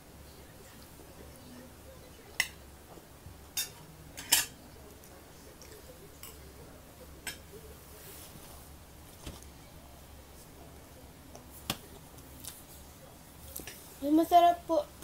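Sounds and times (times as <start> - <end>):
spoons clinking on ceramic plates: 3.5 - 4.6, 7.2 - 7.5.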